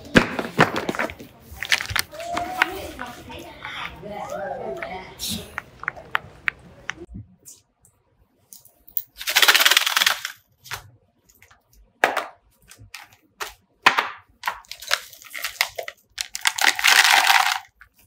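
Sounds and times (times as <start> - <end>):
plastic tub of candy shaken: 9.2 - 10.4, 14.5 - 17.8
snack can rattling: 9.2 - 10.4, 14.4 - 17.9
containers clacking on surface: 14.4 - 18.0.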